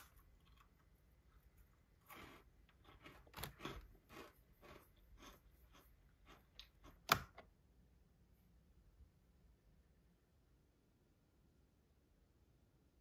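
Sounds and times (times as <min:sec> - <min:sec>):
cookie crunching: 0:00.0 - 0:07.5
cookie cracking: 0:01.7 - 0:07.5.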